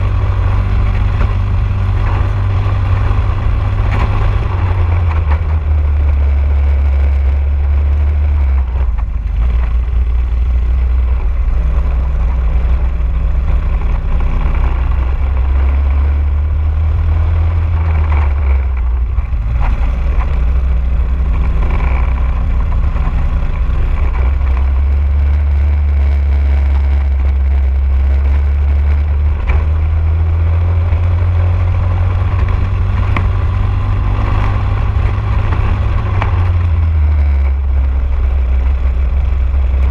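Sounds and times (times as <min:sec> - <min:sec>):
kart engine at race pace: 0:00.0 - 0:39.9.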